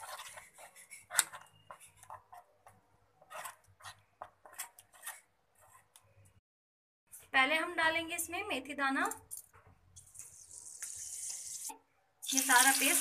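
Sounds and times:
spatula scraping a bowl: 0.0s - 6.0s.

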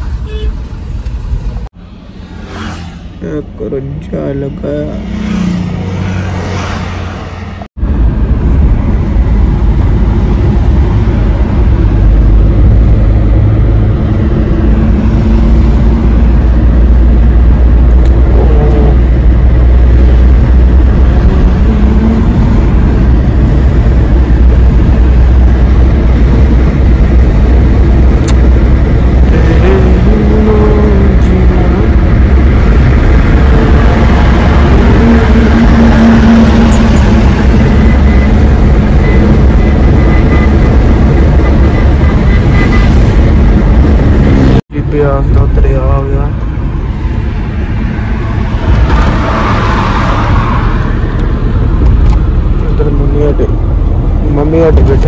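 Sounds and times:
car interior road and engine rumble: 0.0s - 55.0s.

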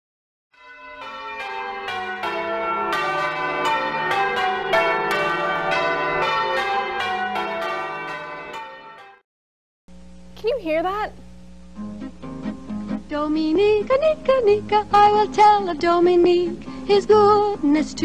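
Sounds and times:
bells ringing: 0.6s - 9.2s.

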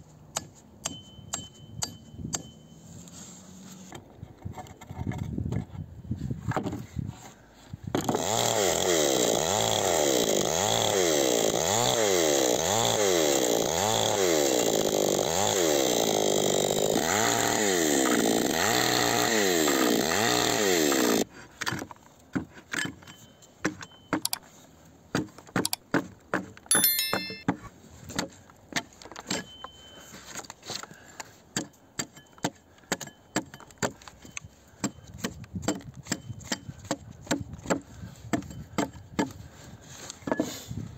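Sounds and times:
chainsaw running: 8.0s - 21.3s
axe chopping log: 34.8s - 39.4s.

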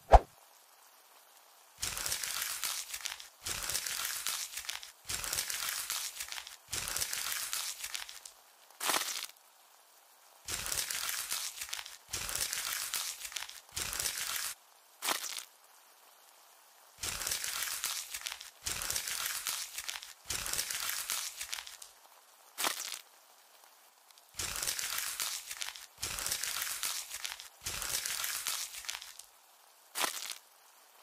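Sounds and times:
short swishes: 0.0s - 0.3s
crisp crinkling and crunching: 1.8s - 9.4s, 10.5s - 15.5s, 17.0s - 21.9s, 22.6s - 23.1s, 24.2s - 29.3s, 30.0s - 30.5s.

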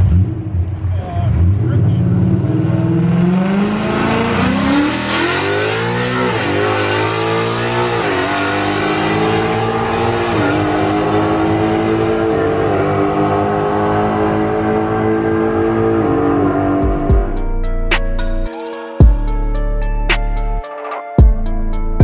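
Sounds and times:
car engine accelerating through gears: 0.0s - 17.4s.

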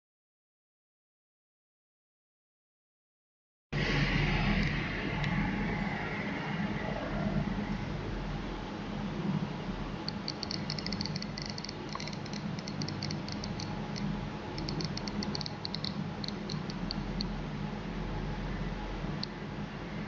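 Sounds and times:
steady low hum: 3.8s - 20.0s
geiger counter ticking: 10.1s - 17.3s.

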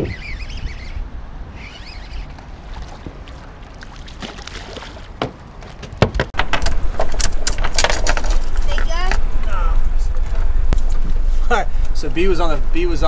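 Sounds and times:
birds calling: 0.0s - 5.6s
water lapping against boat: 1.9s - 5.8s.

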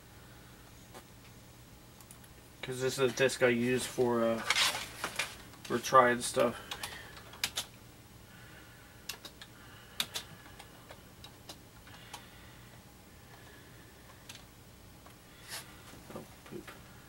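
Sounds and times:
faint steady hum: 0.0s - 17.0s
keyboard typing clicks: 6.7s - 7.7s.

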